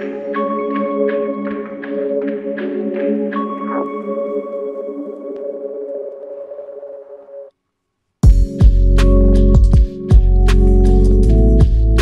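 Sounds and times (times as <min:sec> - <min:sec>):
soft ambient synth chords: 0:00.0 - 0:07.5.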